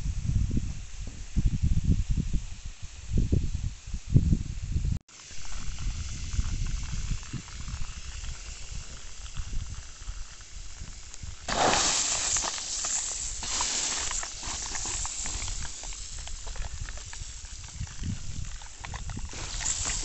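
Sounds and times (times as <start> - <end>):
water hissing from hose: 5.1 - 20.0.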